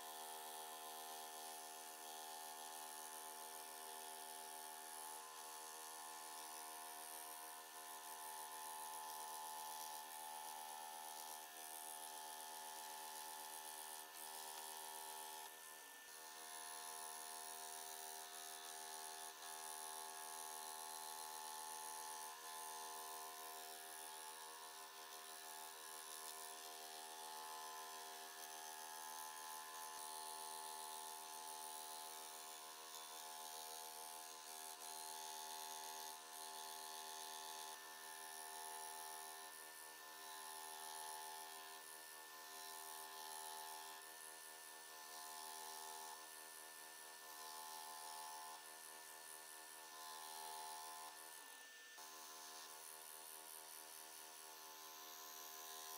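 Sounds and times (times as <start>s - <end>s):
scroll saw cutting wood: 8.0s - 44.0s.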